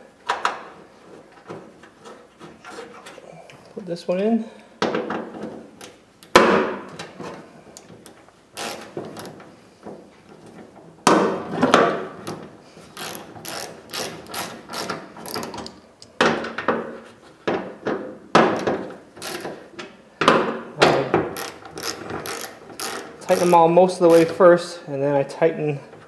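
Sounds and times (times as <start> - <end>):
hand ratchet clicking: 8.0 - 9.3, 13.0 - 15.8, 19.2 - 19.6, 21.3 - 24.4.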